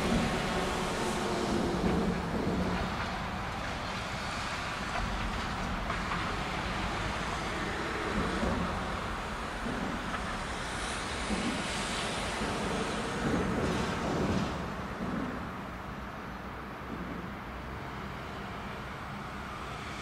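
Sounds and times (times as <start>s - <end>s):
wind rumbling on microphone: 0.0s - 17.7s
distant traffic hum: 0.0s - 20.0s.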